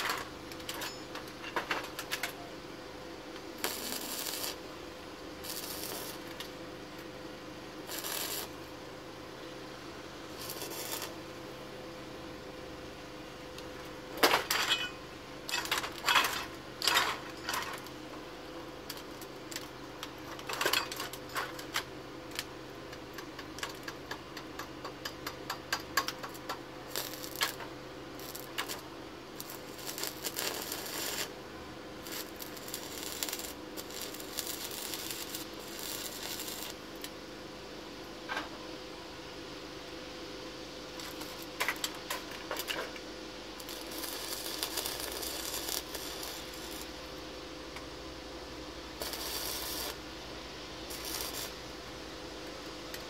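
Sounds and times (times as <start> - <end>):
welding arc crackling: 0.0 - 2.4, 3.3 - 7.1, 7.7 - 8.8, 10.2 - 11.5, 13.5 - 37.2, 40.9 - 48.0, 48.6 - 53.0
welding arc snaps: 0.0 - 2.4, 3.3 - 4.7, 5.4 - 7.1, 7.8 - 8.7, 10.3 - 11.2, 13.5 - 18.2, 18.8 - 37.2, 40.9 - 48.0, 48.9 - 50.1, 50.7 - 53.0
faint hum: 0.0 - 53.0.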